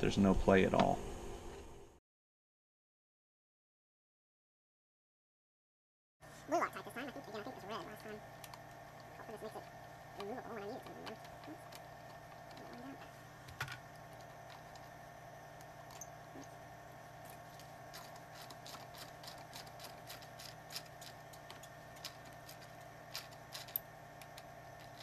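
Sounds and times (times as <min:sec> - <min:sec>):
ratchet clicking: 0:17.9 - 0:25.0.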